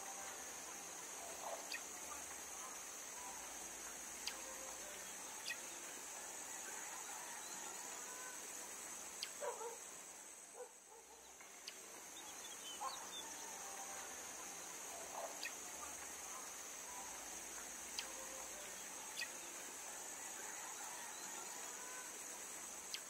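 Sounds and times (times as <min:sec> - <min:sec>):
high-pitched insect drone: 0:00.0 - 0:09.6, 0:12.0 - 0:23.0.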